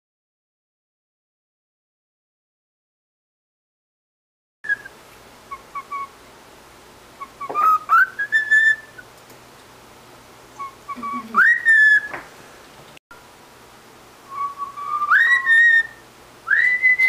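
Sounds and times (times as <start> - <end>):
cockatiel whistling: 4.6 - 6.2, 7.2 - 9.1, 10.6 - 12.2, 14.3 - 17.0
cockatiel chirping: 5.5 - 6.2, 7.2 - 9.0, 10.6 - 12.2, 14.4 - 17.0.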